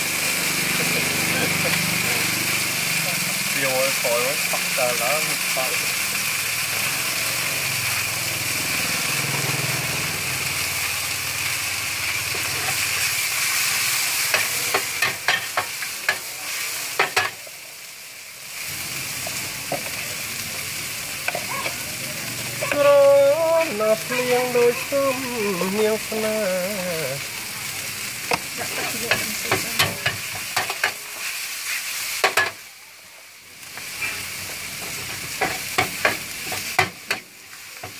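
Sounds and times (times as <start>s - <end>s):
noodles sizzling on steel pan: 0.0s - 37.9s
metal spatula scraping pan: 28.6s - 31.0s.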